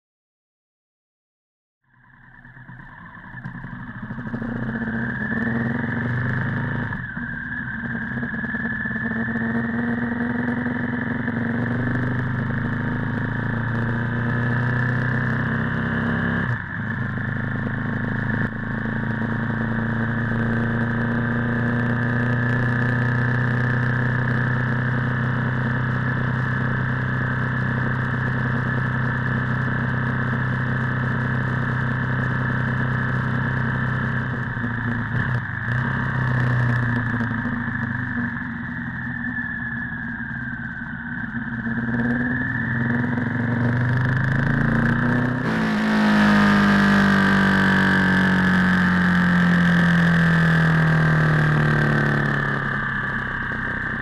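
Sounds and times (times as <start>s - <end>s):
motorcycle engine revving: 2.1s - 54.0s.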